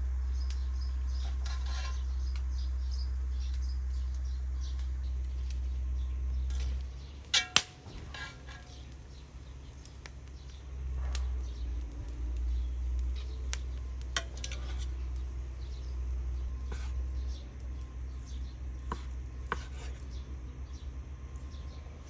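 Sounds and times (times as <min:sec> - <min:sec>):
steady low rumble: 0:00.0 - 0:22.0
metal spoon clinking on pan and plate: 0:06.5 - 0:08.8, 0:14.2 - 0:14.9.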